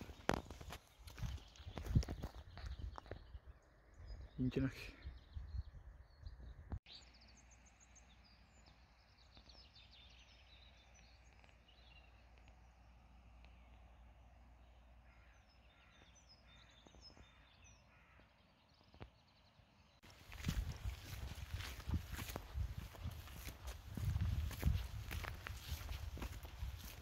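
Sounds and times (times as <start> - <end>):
small birds singing: 0.0 - 27.0
footsteps on a track: 20.0 - 27.0.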